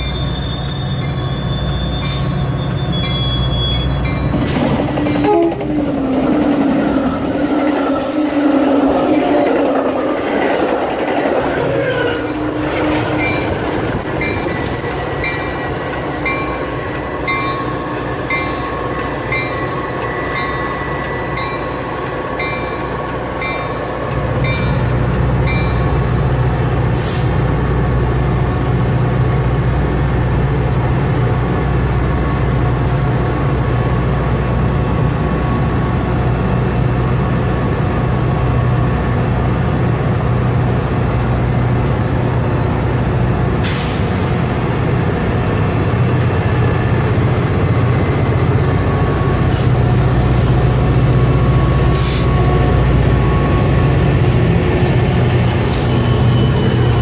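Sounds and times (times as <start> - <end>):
locomotive bell ringing: 0.0 - 4.5, 11.8 - 26.9
diesel locomotive engine: 0.0 - 57.0.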